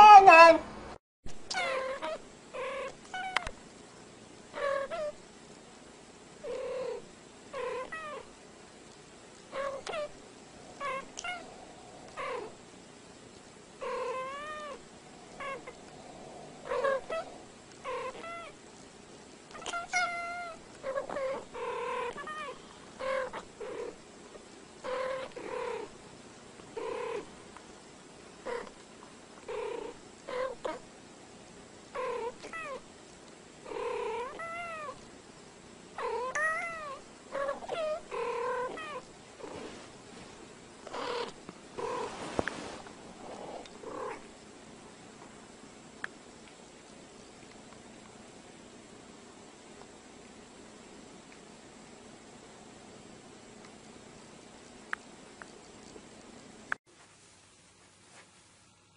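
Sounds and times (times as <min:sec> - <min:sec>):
cats meowing: 0:09.6 - 0:12.5, 0:16.6 - 0:18.6, 0:19.5 - 0:21.4, 0:36.0 - 0:39.1.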